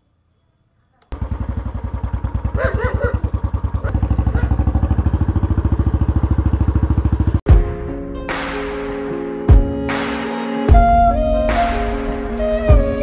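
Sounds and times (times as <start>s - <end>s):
motorcycle engine thumping: 1.1s - 7.5s
music: 7.5s - 13.0s.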